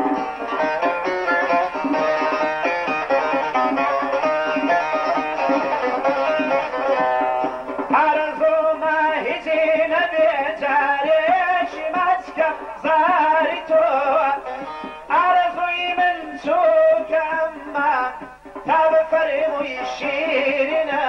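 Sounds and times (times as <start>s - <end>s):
instrumental accompaniment: 0.0s - 21.0s
man singing ornamented melody: 7.8s - 21.0s.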